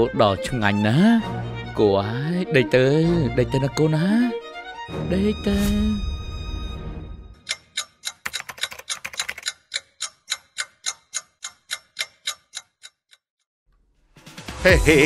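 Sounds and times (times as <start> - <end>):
music: 0.0 - 7.5, 14.0 - 15.0
clock ticking: 7.4 - 13.3.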